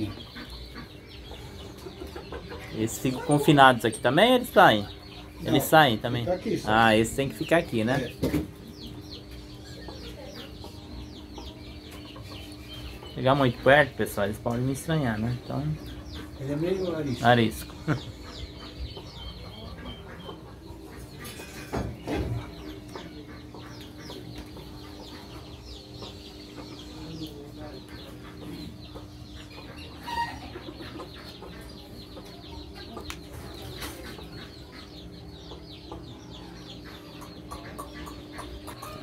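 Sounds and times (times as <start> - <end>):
chickens clucking: 0.0 - 39.0
steady low hum: 0.0 - 39.0.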